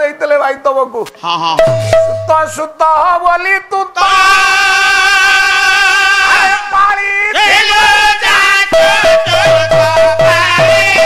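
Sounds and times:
person singing melody: 7.4 - 11.0.

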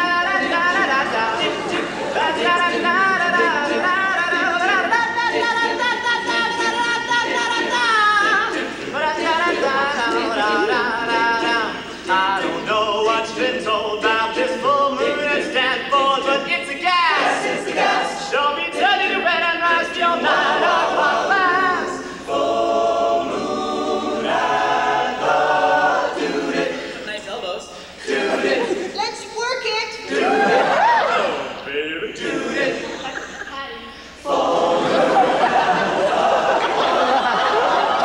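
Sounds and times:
male a cappella group singing: 0.0 - 27.1, 27.9 - 28.8, 30.1 - 33.4, 34.1 - 38.0.

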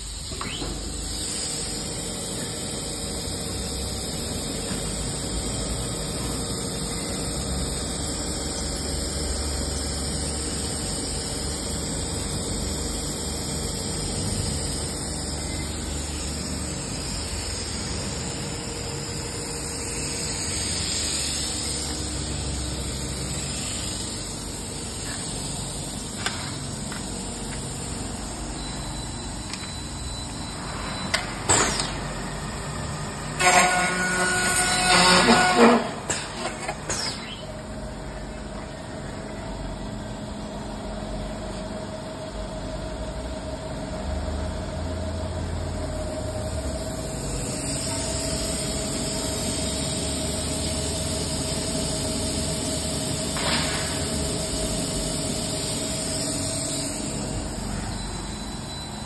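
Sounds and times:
sharp machine click: 31.0 - 32.2.

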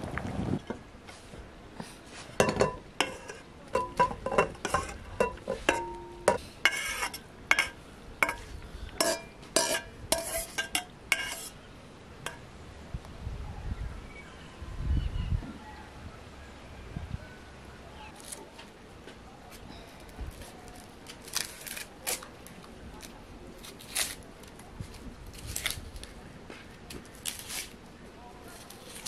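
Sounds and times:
metal spoon scraping bowl: 2.4 - 11.6.

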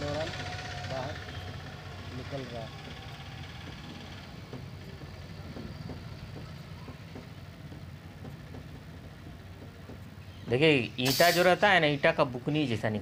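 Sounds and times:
faint taps: 2.8 - 10.6.

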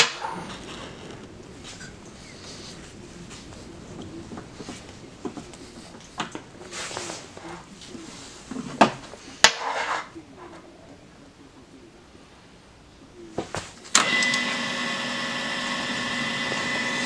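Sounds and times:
scraping rustle: 0.0 - 10.7.

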